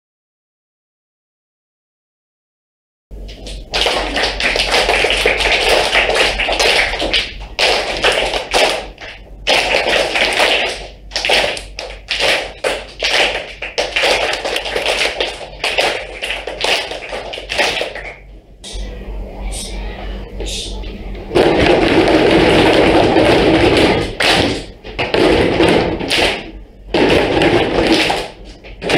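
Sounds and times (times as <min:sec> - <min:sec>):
children clapping a rhythm: 0:03.2 - 0:18.8, 0:21.4 - 0:28.9.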